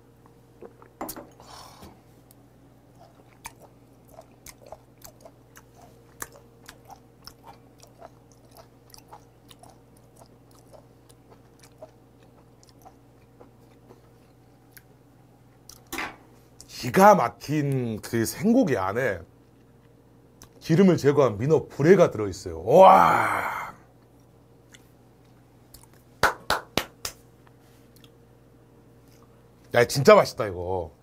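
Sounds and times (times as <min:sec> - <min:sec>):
man chewing with wet mouth clicks: 0:02.3 - 0:15.0, 0:15.6 - 0:15.9, 0:19.5 - 0:20.6, 0:24.0 - 0:26.1, 0:27.9 - 0:28.2.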